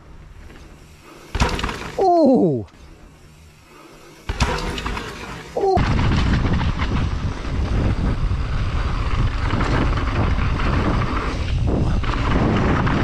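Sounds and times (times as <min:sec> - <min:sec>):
bike knocking and rattling: 0:00.0 - 0:02.0, 0:02.7 - 0:13.0
tyres rumbling on dirt: 0:03.0 - 0:13.0
wind rushing over microphone: 0:05.7 - 0:13.0.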